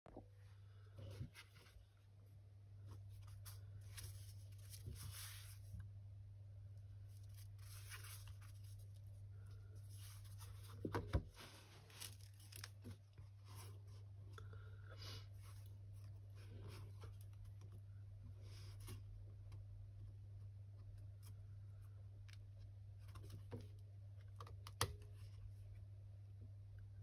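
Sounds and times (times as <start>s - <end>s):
steady low hum: 0.1s - 27.0s
paper and card rustling: 2.9s - 5.7s, 7.1s - 14.0s.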